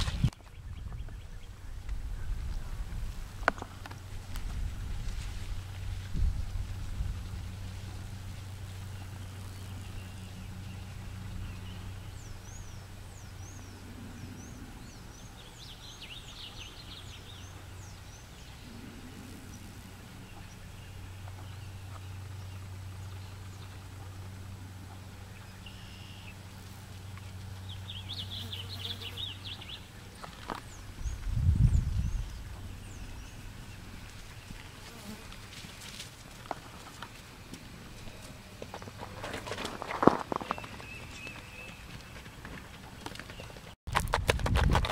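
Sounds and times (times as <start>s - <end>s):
birds chirping: 0.0s - 4.5s, 7.6s - 34.6s, 37.5s - 43.8s
steady low hum: 0.0s - 39.2s
bird trilling song: 25.3s - 26.4s.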